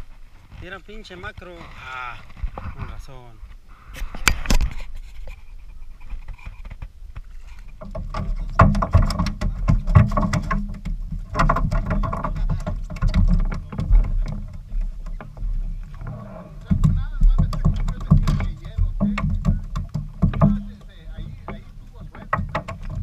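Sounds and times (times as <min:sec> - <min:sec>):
boat engine rumble: 0:03.2 - 0:23.0
knocks and clicks: 0:07.8 - 0:23.0.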